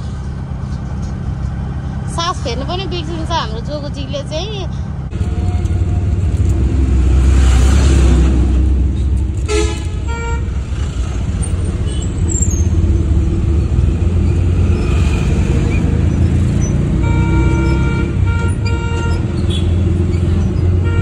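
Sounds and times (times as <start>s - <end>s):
vehicle rumble inside cabin: 0.0s - 21.0s
horn toot: 9.4s - 10.6s, 17.0s - 19.8s.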